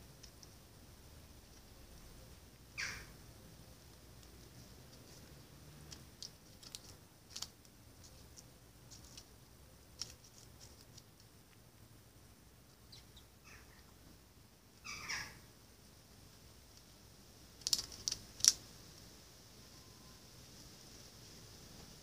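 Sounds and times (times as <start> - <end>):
beak tapping on paving stones: 17.6 - 18.6.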